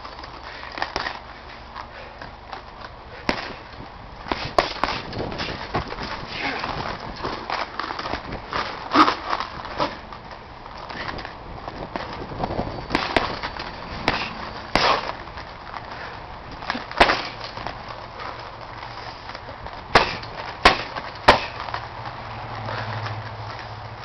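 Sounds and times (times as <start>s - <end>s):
punches thudding on heavy bag: 3.2s - 10.0s, 11.9s - 15.2s, 16.5s - 17.8s, 19.9s - 21.6s.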